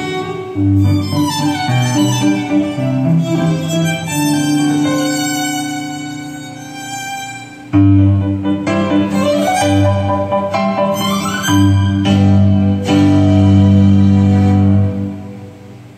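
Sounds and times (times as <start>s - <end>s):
lower bowed strings: 0.0s - 15.6s
violin melody: 0.0s - 15.9s.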